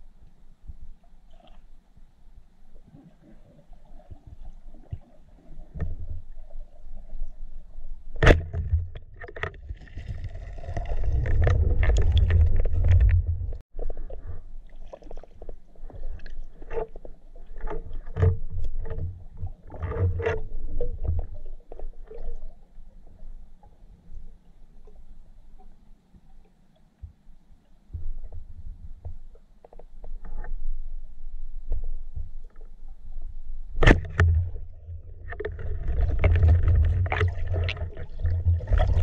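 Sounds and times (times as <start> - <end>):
rumbling underwater noise: 2.8 - 23.4, 27.9 - 39.0
sharp knock underwater: 8.2 - 9.0, 33.8 - 35.6.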